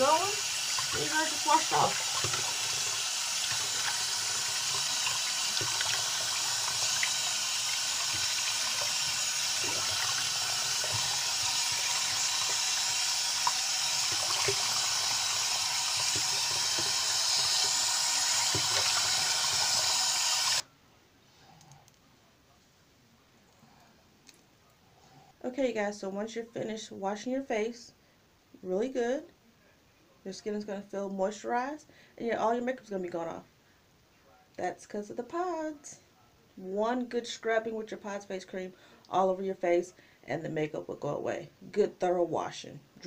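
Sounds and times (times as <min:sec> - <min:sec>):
tap running into sink: 0:00.6 - 0:20.6.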